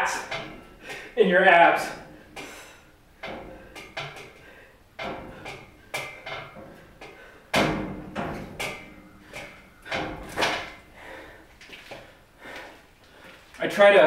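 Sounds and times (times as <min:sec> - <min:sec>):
metal pull-up bar knocking: 0:00.0 - 0:11.0.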